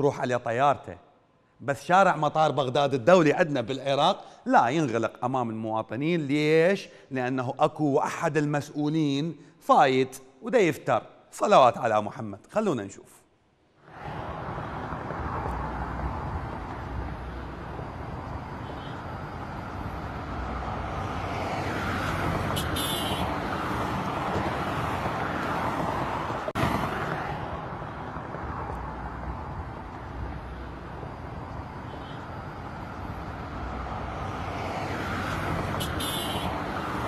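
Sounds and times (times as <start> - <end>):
road traffic: 1.1 - 7.2, 13.2 - 37.0
vehicle driving past: 13.8 - 37.0.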